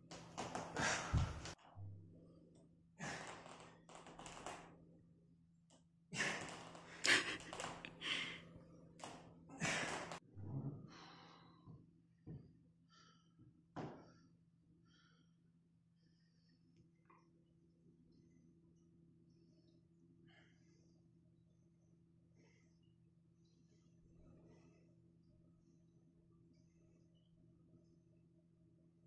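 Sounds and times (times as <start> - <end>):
man breathing hard: 7.0 - 8.5.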